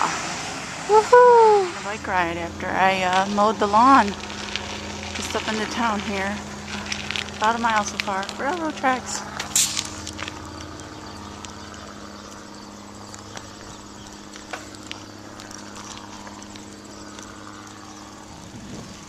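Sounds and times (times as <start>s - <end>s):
diesel locomotive engine humming: 0.0s - 19.0s
bicycle clicking and knocking: 9.2s - 18.2s.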